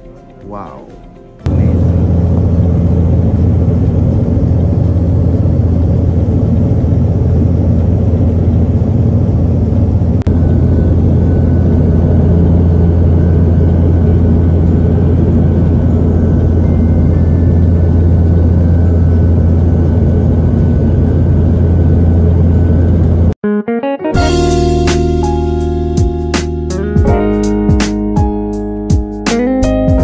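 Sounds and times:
airliner cabin drone: 1.4s - 23.4s.

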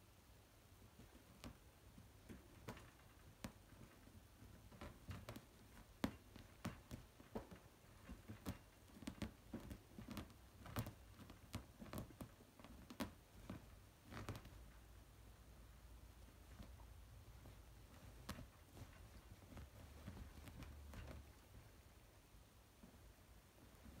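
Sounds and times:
kitten claws scratching towel: 0.9s - 22.2s.

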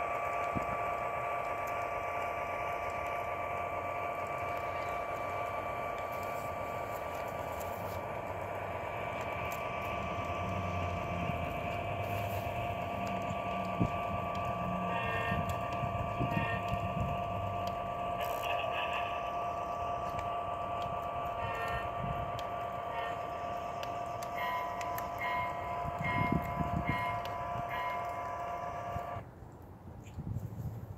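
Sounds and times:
model train whine: 0.0s - 29.3s
short high tones: 22.8s - 29.2s.

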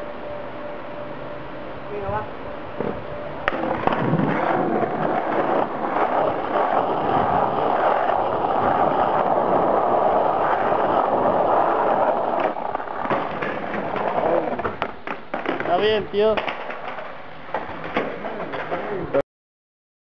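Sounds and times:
skateboard wheels rolling: 2.8s - 19.2s
skateboard clacks: 3.5s - 19.2s.

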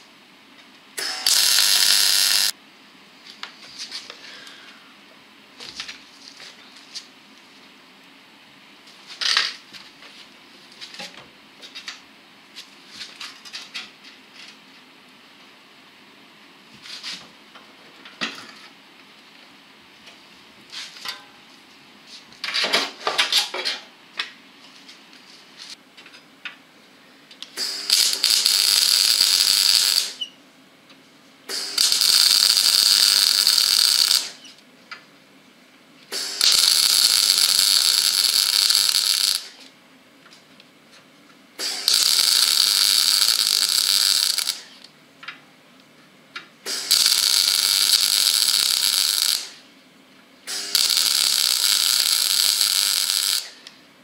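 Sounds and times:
welder crackling hiss: 1.0s - 2.6s, 27.5s - 30.3s, 31.5s - 34.5s, 36.1s - 39.6s, 41.6s - 44.8s, 46.6s - 49.6s, 50.5s - 53.6s.

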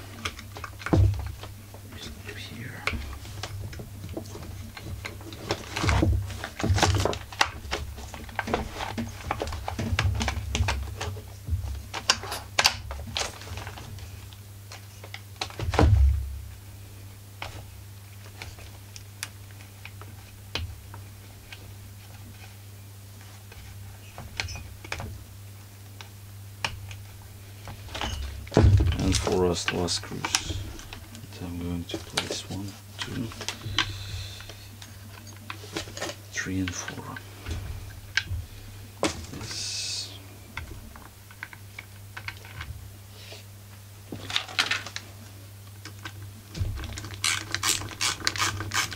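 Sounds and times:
heavier thumps: 15.6s - 16.7s, 28.1s - 29.4s.

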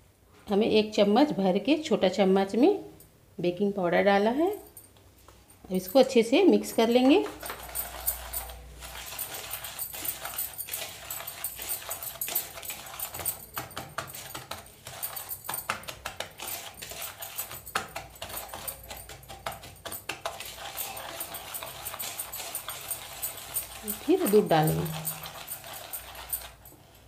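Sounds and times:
metal spoon scraping plastic bowl: 6.7s - 26.6s.

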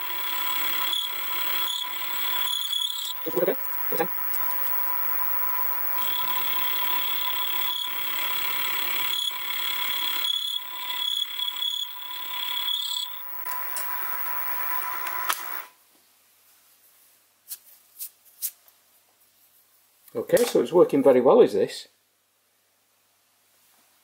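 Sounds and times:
fly cutter cutting metal: 0.0s - 15.7s
mill motor whine: 0.0s - 15.7s.

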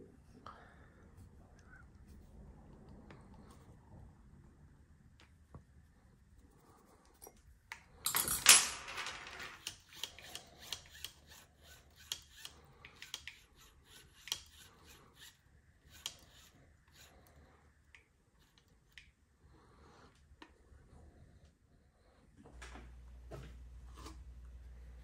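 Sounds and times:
small metal parts rustling: 8.0s - 10.3s.

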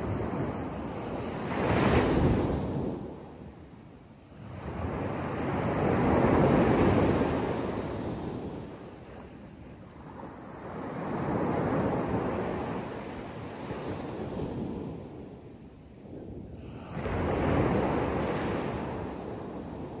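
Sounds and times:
small waves breaking on sand: 0.0s - 15.5s, 16.5s - 20.0s.

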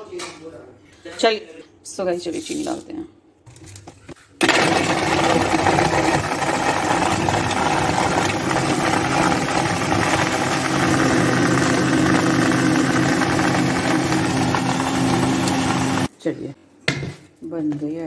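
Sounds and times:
electric mixer grinder running: 4.4s - 16.1s.

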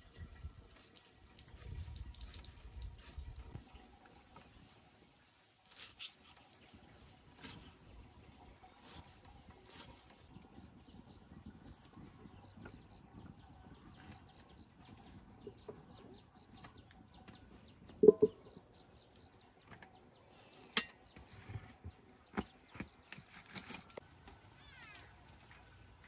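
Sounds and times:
metal pot clank: 18.0s - 18.4s.

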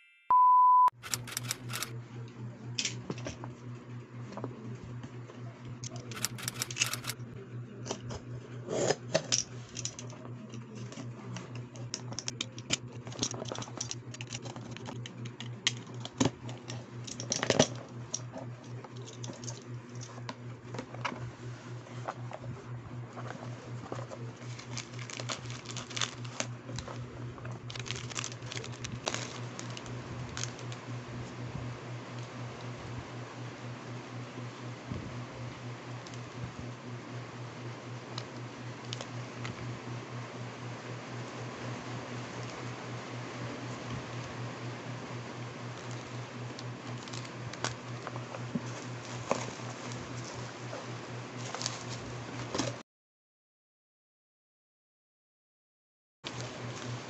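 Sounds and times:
high test-tone beep: 0.0s - 1.0s
plastic sachets crinkling: 24.0s - 30.8s, 46.8s - 47.7s.

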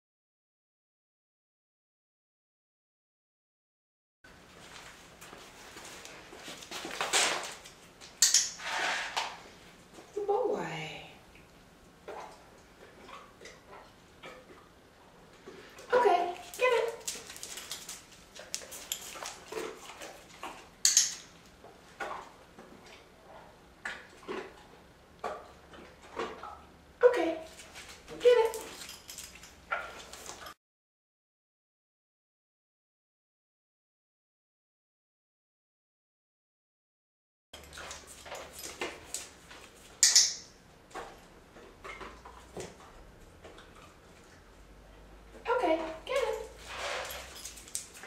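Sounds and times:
dog paws tapping on tiles: 16.3s - 22.2s, 27.5s - 30.6s, 37.6s - 44.4s, 45.4s - 48.0s
sharp clicker click: 40.0s - 40.4s.

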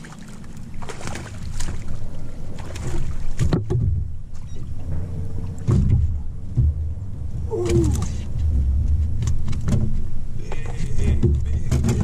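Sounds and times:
low rumble: 0.0s - 12.0s
knocks on metal boat: 5.6s - 7.0s.

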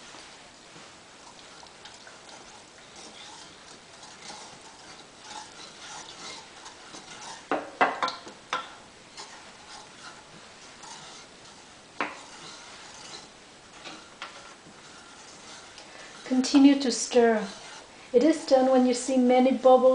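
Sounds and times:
spoon scraping pot: 1.2s - 19.2s
spoon knocking against pot: 7.5s - 8.8s.

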